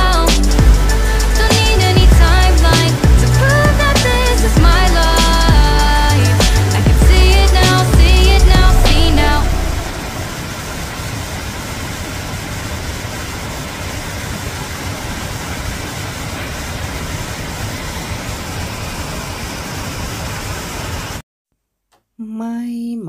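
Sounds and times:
small waterfall rushing: 8.2 - 21.2.

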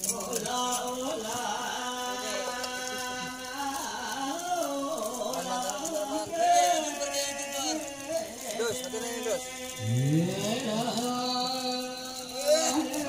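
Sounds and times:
person singing long notes: 9.6 - 13.0.

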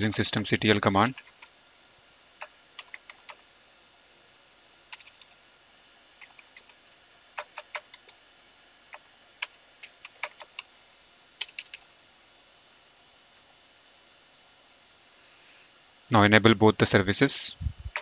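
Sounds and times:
clicky keyboard typing: 1.1 - 1.5, 2.4 - 3.4, 4.9 - 5.4, 6.2 - 6.8, 7.4 - 8.2, 8.9 - 10.7, 11.4 - 11.8.

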